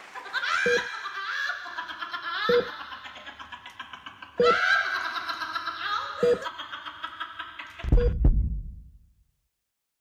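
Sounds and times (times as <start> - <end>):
deep bass hits: 7.9 - 9.1.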